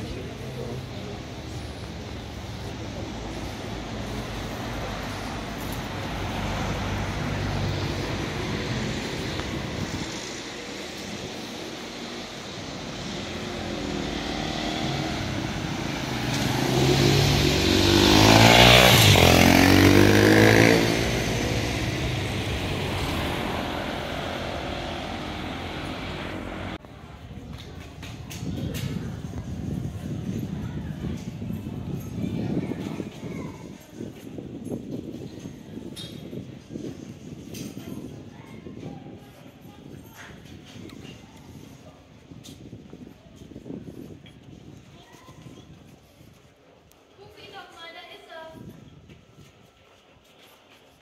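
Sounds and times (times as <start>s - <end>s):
street traffic: 0.0s - 51.0s
motorcycle passing: 0.2s - 26.8s.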